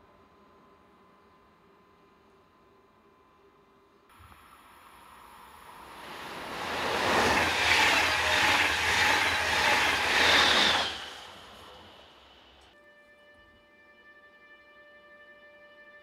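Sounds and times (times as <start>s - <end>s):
train passing at speed: 4.1s - 12.8s.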